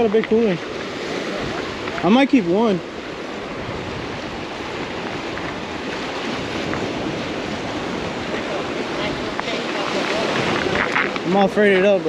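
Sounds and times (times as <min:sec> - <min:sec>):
surf breaking against rocks: 0:00.0 - 0:12.0.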